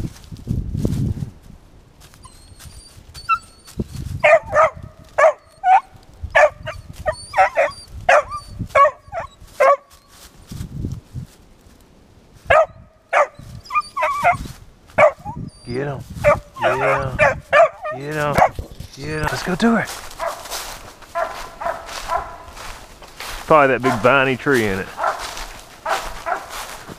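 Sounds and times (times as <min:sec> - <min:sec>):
dog barking high: 0:04.2 - 0:09.9, 0:12.5 - 0:14.4, 0:15.0 - 0:15.4, 0:16.2 - 0:18.6, 0:20.1 - 0:22.9, 0:23.8 - 0:24.2, 0:24.9 - 0:26.8.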